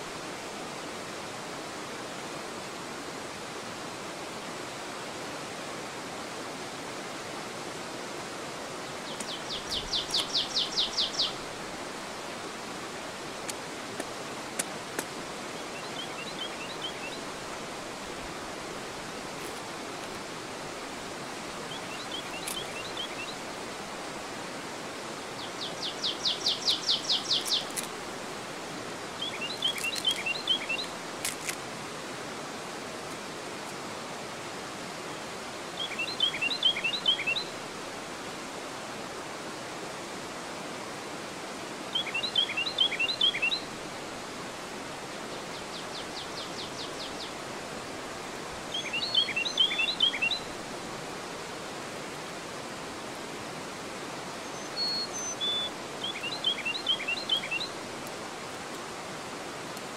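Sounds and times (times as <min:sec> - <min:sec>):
river water pouring over weir: 0:00.0 - 0:59.9
songbird chirping: 0:08.9 - 0:11.6, 0:15.5 - 0:17.6, 0:21.5 - 0:23.5, 0:25.3 - 0:28.0, 0:29.1 - 0:31.6, 0:35.8 - 0:37.6, 0:41.9 - 0:43.7, 0:45.3 - 0:47.5, 0:48.7 - 0:50.6, 0:54.3 - 0:58.7.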